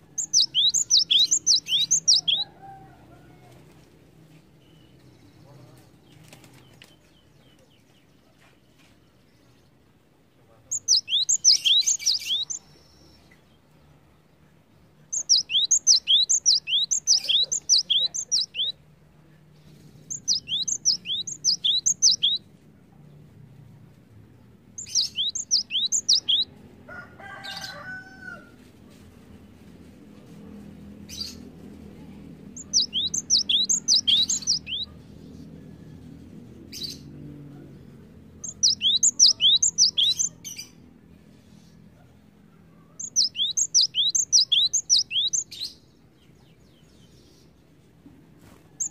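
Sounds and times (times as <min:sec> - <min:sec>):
bird singing whistled notes: 0:00.0 - 0:02.5, 0:10.7 - 0:13.2, 0:15.1 - 0:18.8, 0:20.1 - 0:22.4, 0:24.8 - 0:26.5, 0:32.6 - 0:34.9, 0:38.4 - 0:40.7, 0:43.0 - 0:45.8.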